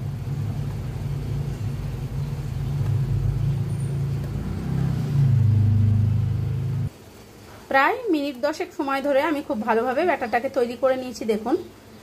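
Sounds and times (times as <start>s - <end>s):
low hum: 0.0s - 6.9s.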